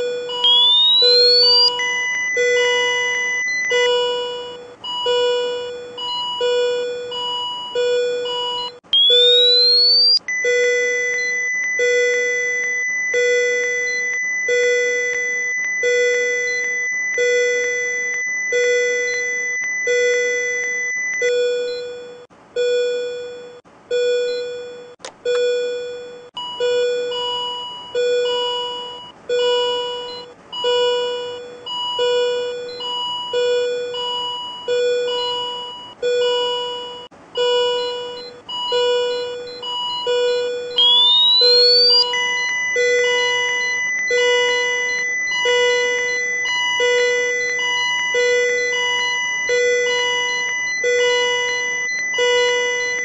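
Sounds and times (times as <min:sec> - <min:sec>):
steady high ready tone: 0:00.0 - 0:02.0, 0:08.7 - 0:10.2, 0:40.8 - 0:42.1
repeating alarm tone: 0:00.0 - 0:20.8, 0:37.8 - 0:53.0
defibrillator charging whine: 0:00.0 - 0:22.0, 0:37.6 - 0:53.0
click: 0:15.1 - 0:15.8.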